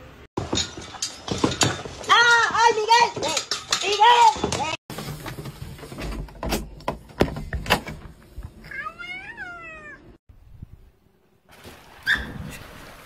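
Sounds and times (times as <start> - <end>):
cat meowing: 8.7 - 10.2.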